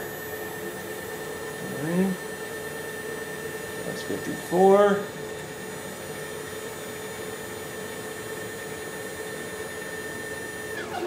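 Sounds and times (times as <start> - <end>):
stepper motors whining: 6.8 - 11.0.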